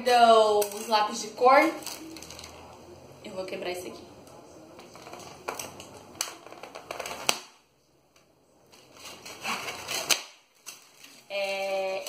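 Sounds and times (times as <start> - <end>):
plastic disc crackling and snapping: 4.8 - 7.6, 8.7 - 11.2.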